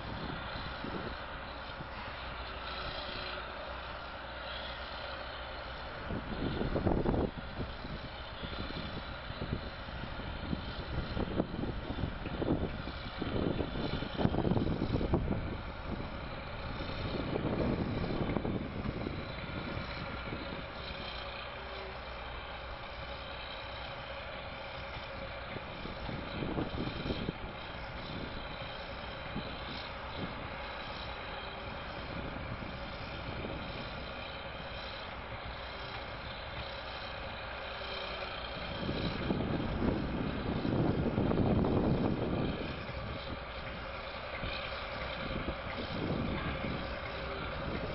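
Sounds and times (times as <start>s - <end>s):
bulldozer diesel engine running: 0.0s - 47.9s.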